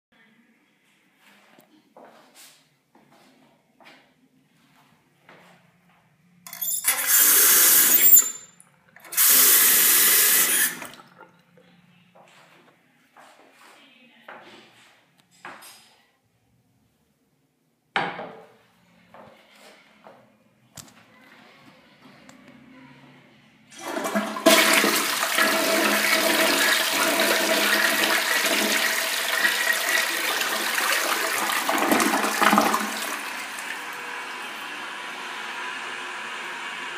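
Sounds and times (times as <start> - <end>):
toilet tank refilling hiss: 6.5 - 8.4, 9.0 - 11.1, 23.8 - 36.9
faucet turned on and off: 6.5 - 11.4, 23.8 - 36.9
water running into sink: 6.5 - 11.4, 23.8 - 36.4
toilet flushing: 6.5 - 11.6, 23.7 - 36.9.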